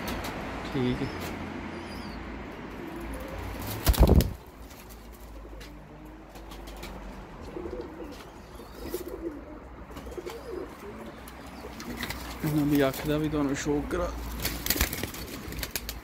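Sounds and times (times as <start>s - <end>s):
pigeons cooing: 0.0s - 13.3s
pigeon wings flapping: 3.2s - 5.3s, 14.3s - 16.0s.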